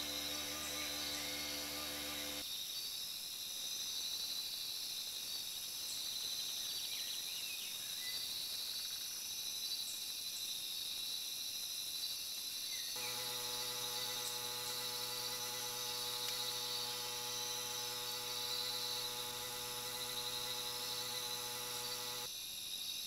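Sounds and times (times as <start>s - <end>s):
insects droning: 0.0s - 23.0s.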